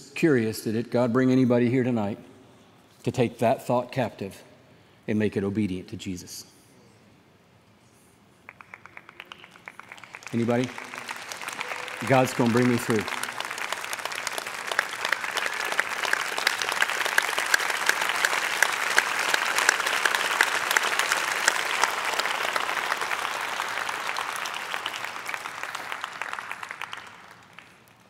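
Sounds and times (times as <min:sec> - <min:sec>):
audience applauding: 0:08.4 - 0:28.0.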